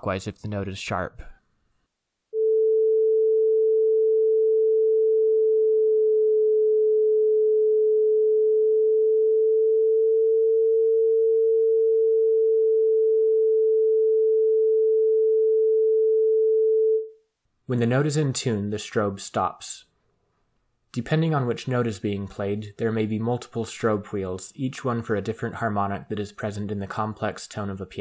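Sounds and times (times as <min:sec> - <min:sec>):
pure electronic tone: 0:02.4 - 0:17.1.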